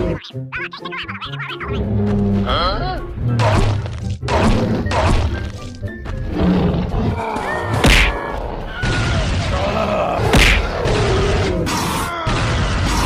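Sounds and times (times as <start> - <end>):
cartoon background music: 0.0 - 13.0
whack and thud hit effects: 7.8 - 8.2, 10.3 - 10.7.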